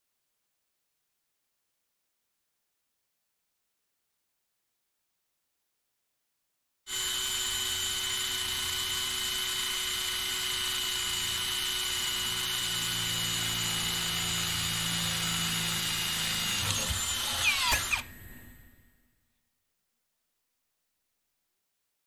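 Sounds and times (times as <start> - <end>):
rivet drilling: 6.9 - 18.2
rivet tool motor whine: 6.9 - 18.5.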